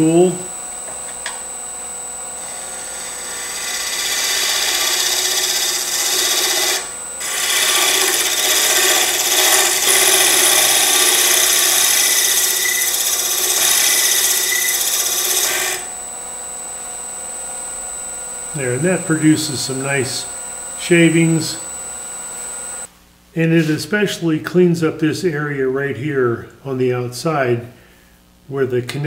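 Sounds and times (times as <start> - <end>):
lathe hum and whine: 0.0 - 22.9
scraper cutting wood on lathe: 2.4 - 15.9.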